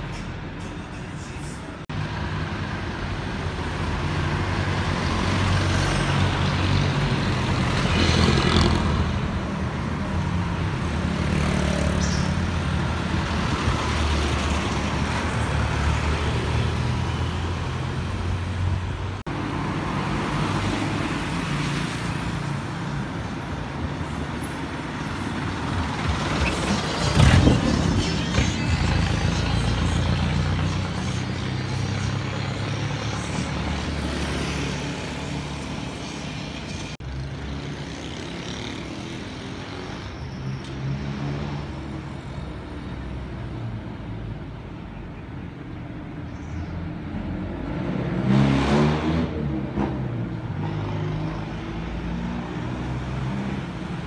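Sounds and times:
diesel engines passing: 0.0s - 54.0s
motorcycles passing: 25.5s - 40.1s.

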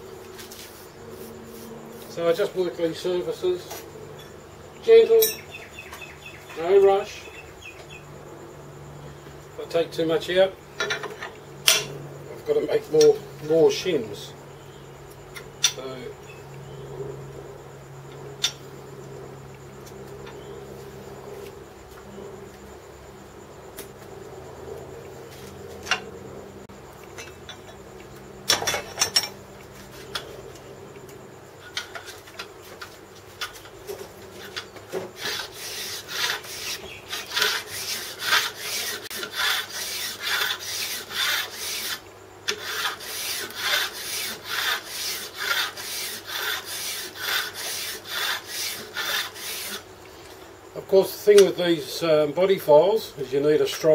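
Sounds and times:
file rasping on metal: 35.2s - 49.9s.

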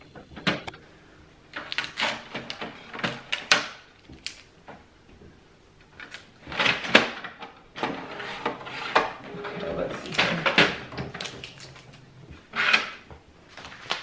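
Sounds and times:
printer paper guides sliding: 7.8s - 11.3s, 12.4s - 13.0s.

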